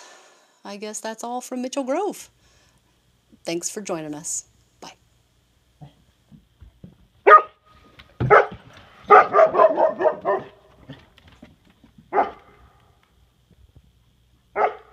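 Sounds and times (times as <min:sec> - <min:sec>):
dogs barking: 0:07.2 - 0:07.6, 0:08.2 - 0:11.0, 0:12.1 - 0:12.6, 0:14.6 - 0:14.9.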